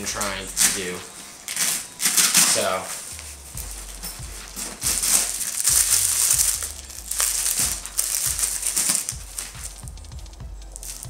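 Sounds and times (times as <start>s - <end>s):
plastic bags crinkling: 0.0s - 10.0s, 10.7s - 11.0s.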